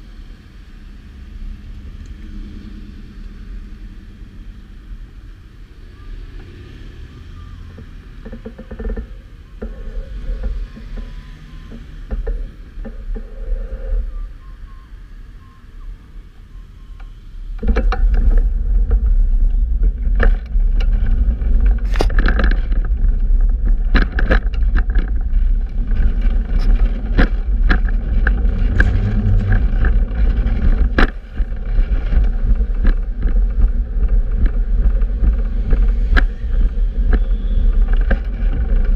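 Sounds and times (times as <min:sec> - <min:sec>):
traffic rumble: 0:00.0 - 0:38.9
sharp knocks and rattles: 0:07.7 - 0:13.3, 0:17.6 - 0:38.9
wind buffeting microphone: 0:17.6 - 0:38.9.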